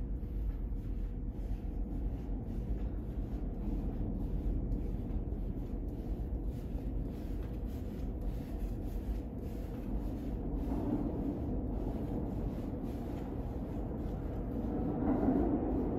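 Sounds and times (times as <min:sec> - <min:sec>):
subway train rumbling: 0:00.0 - 0:00.4, 0:07.1 - 0:15.9.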